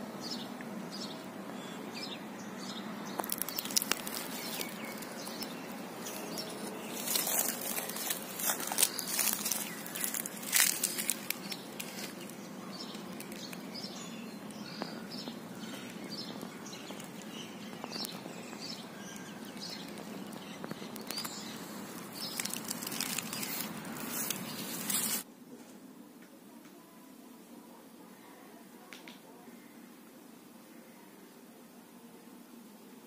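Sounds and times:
small birds chirping: 0.0s - 25.2s
steady hiss: 0.0s - 26.4s
dry leaves rustling: 3.0s - 25.3s.

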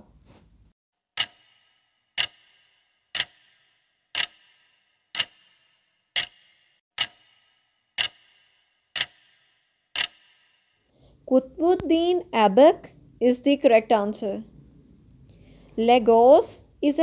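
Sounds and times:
clock ticking: 1.2s - 10.5s.

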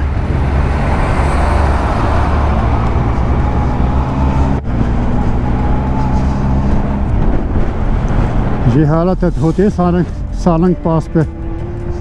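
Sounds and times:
wind and road noise: 0.0s - 12.0s
motorcycle engine running: 2.3s - 8.6s.

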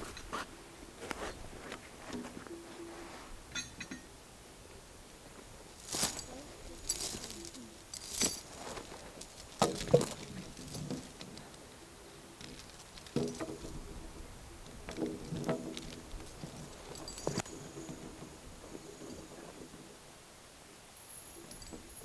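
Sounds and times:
steel chain rattling: 5.8s - 11.8s, 12.4s - 13.9s, 15.0s - 19.4s.

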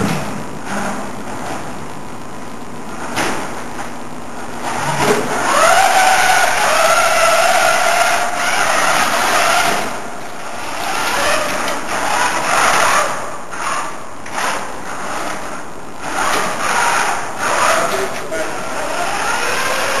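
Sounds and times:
robot drive motors whining: 4.4s - 20.0s.

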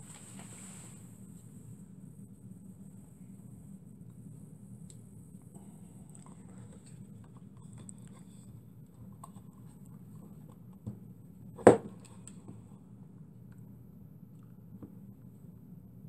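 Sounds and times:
wooden base knocking on workbench: 11.6s - 11.9s.

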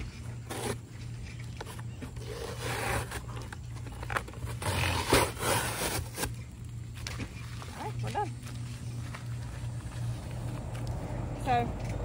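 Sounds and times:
cardboard scraping and flexing: 0.3s - 0.9s, 1.6s - 6.4s
packing tape ripping: 4.1s - 6.4s.

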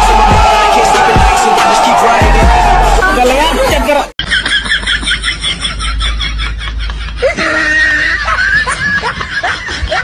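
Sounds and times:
high-pitched laughter: 4.2s - 10.0s.

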